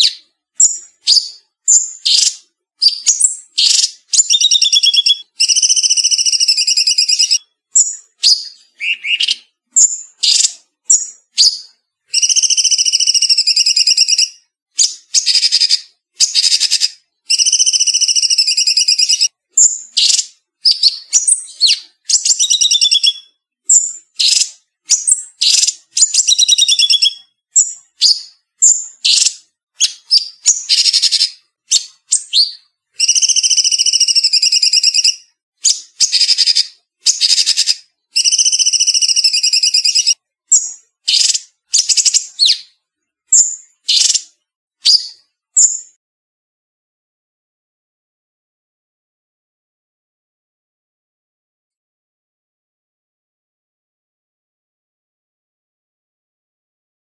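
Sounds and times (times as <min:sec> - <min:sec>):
bird chirps and whistles: 0:00.0 - 0:46.0
songbird trilling song: 0:00.0 - 0:46.0.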